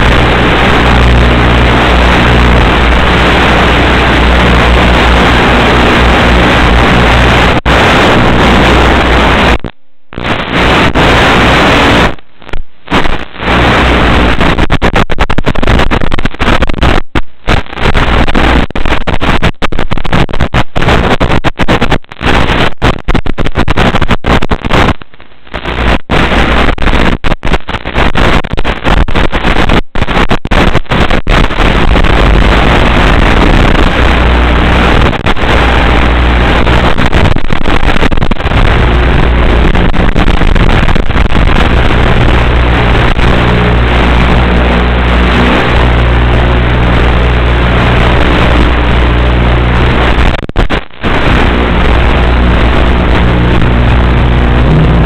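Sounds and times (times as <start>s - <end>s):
steady low hum: 0.0s - 14.7s, 37.8s - 50.4s, 51.0s - 55.0s
harsh static noise: 0.0s - 55.0s.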